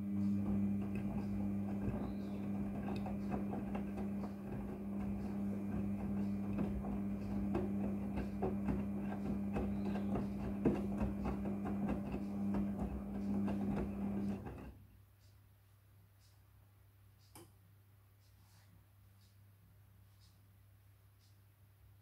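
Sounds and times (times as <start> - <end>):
washing machine motor hum: 0.0 - 14.8.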